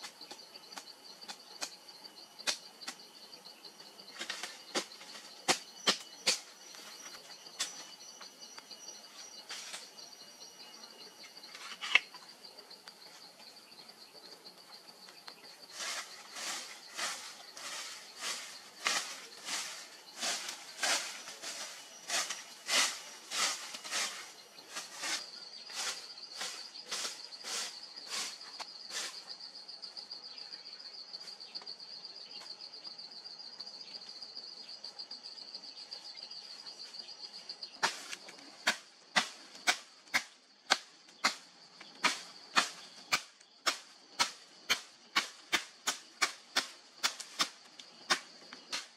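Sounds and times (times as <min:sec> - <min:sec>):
high insect trill: 0:00.0 - 0:48.9
stick sweeping through dry leaves: 0:15.6 - 0:29.3.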